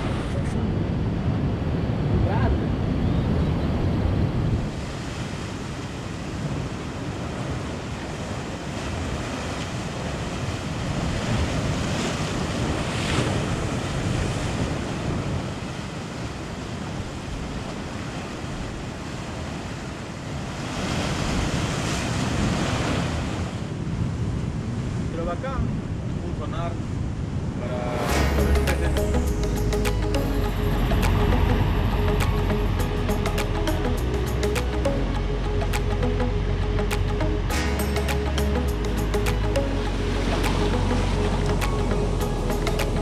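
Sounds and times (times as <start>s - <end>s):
wind rumble on microphone: 0.0s - 29.5s
ocean surf breaking: 0.0s - 43.0s.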